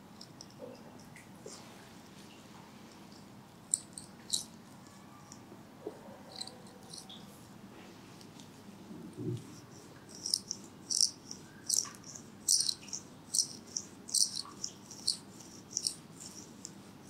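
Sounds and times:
handheld tool scratching hair: 0:12.5 - 0:16.8.

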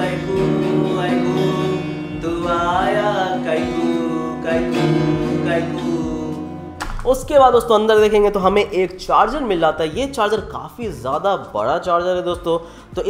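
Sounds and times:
person singing: 0:00.0 - 0:08.2
acoustic guitar picking: 0:00.0 - 0:13.0.

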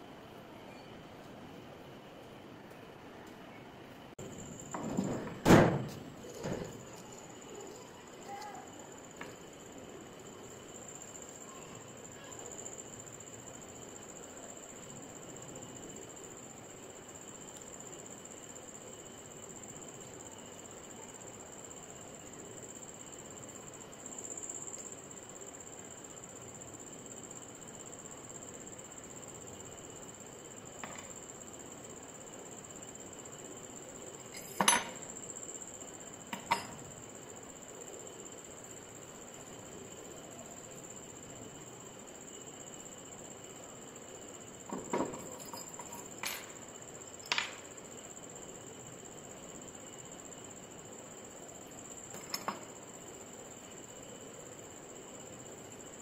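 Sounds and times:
faint high-pitched whine: 0:00.0 - 0:56.0
metal parts clinking: 0:45.1 - 0:46.6.

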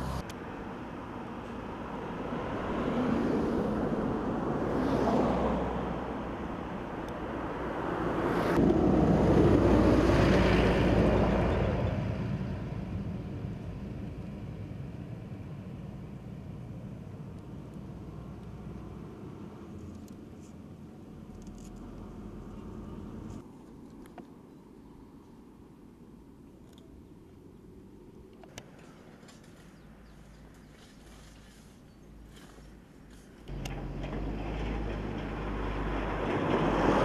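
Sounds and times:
motor vehicles passing by: 0:00.0 - 0:20.4, 0:28.6 - 0:37.0.

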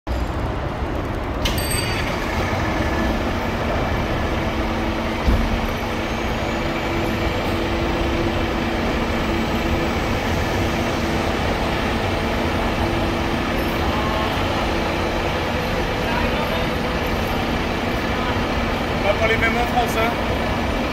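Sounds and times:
city traffic noise: 0:00.1 - 0:20.9
diesel engine idling: 0:01.9 - 0:20.9
thump: 0:05.2 - 0:05.7.

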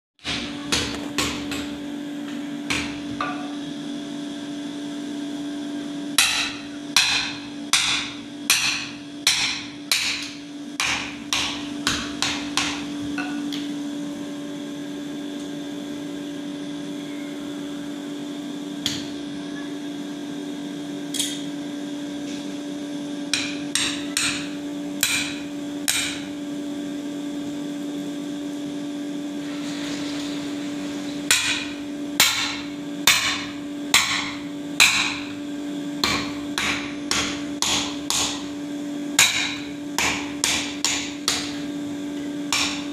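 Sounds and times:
steady hum: 0:00.2 - 0:42.9
hammer striking iron on anvil: 0:02.7 - 0:03.6, 0:06.2 - 0:13.6, 0:23.3 - 0:26.3, 0:31.3 - 0:35.4, 0:36.0 - 0:38.5, 0:39.2 - 0:41.6, 0:42.5 - 0:42.9.

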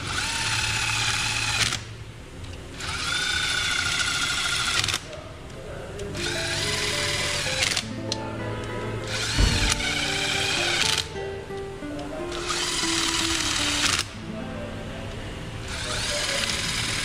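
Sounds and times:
noisy whirring bursts: 0:00.0 - 0:17.0
background music with held notes: 0:06.1 - 0:17.0.

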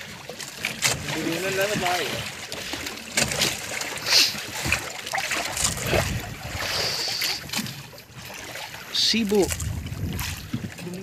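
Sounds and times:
water lapping against boat: 0:00.0 - 0:11.0.

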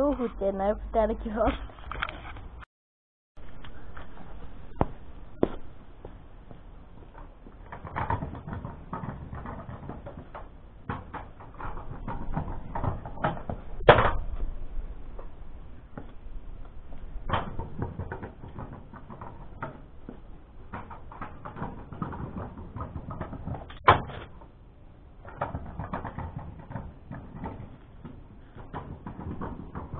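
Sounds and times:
kick scooter rolling over paving: 0:03.7 - 0:14.5, 0:15.9 - 0:24.6, 0:25.2 - 0:29.9
scooter wheels clicking and clattering: 0:06.5 - 0:14.2, 0:17.2 - 0:24.5, 0:25.2 - 0:29.9
scooter knocking on paving: 0:17.2 - 0:23.9, 0:25.2 - 0:29.9.

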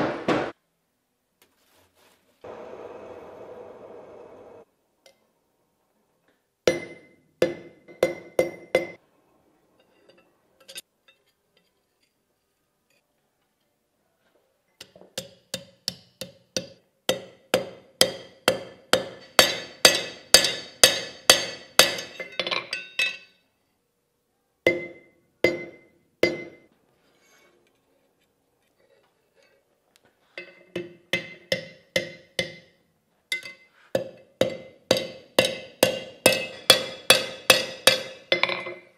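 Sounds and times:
hammer striking steel on anvil: 0:06.7 - 0:09.0, 0:14.8 - 0:23.4, 0:24.7 - 0:26.7, 0:30.4 - 0:38.9.

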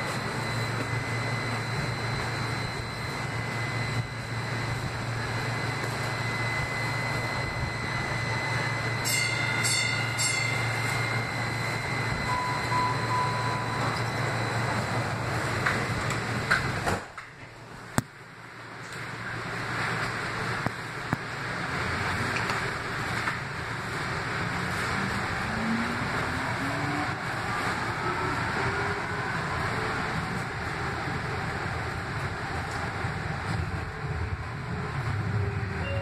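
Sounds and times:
train low hum: 0:00.0 - 0:36.0
high beeps: 0:09.0 - 0:14.6.

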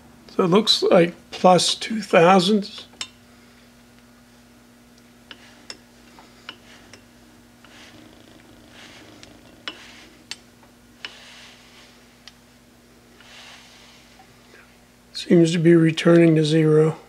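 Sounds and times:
steady low hum: 0:00.0 - 0:17.0
soft rasping of handwheel: 0:05.3 - 0:12.2, 0:13.1 - 0:14.4.

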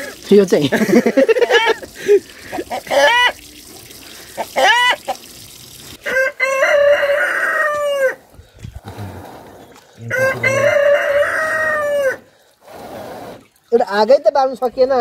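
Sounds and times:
rooster crowing: 0:06.0 - 0:08.2, 0:10.1 - 0:12.3.

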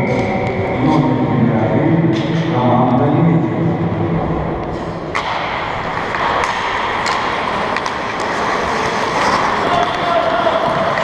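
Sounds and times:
arena hubbub: 0:00.0 - 0:11.0
skates on ice: 0:05.1 - 0:11.0
sticks hitting puck: 0:05.1 - 0:11.0.

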